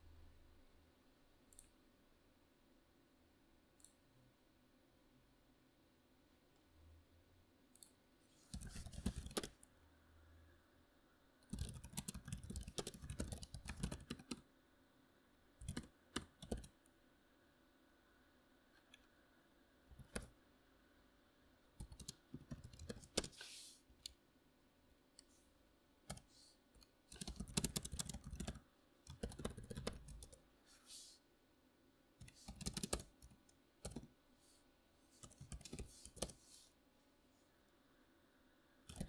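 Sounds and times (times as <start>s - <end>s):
typing on computer keyboard: 8.5s - 9.6s, 11.5s - 14.4s, 15.6s - 16.8s, 20.0s - 20.3s, 21.8s - 23.4s, 27.1s - 30.4s, 32.2s - 34.1s, 35.2s - 36.4s.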